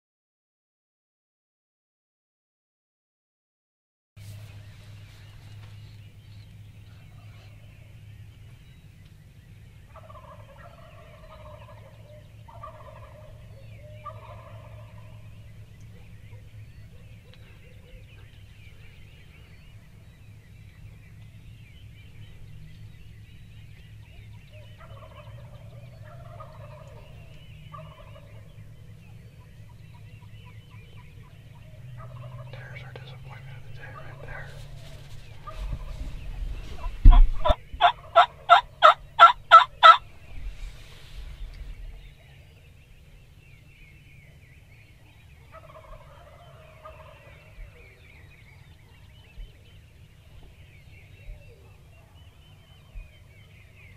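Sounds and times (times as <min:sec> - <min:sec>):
steady low hum: 0:04.2 - 0:53.9
turkeys gobbling: 0:09.9 - 0:18.9, 0:24.0 - 0:40.1, 0:45.0 - 0:49.6.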